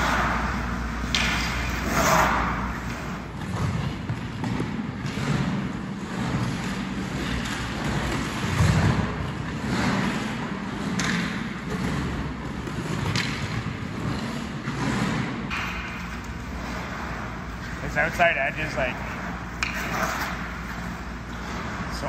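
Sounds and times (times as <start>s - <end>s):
skate blades scraping on ice: 0.0s - 22.0s
hockey stick clicking on puck: 1.0s - 16.8s, 19.5s - 20.8s.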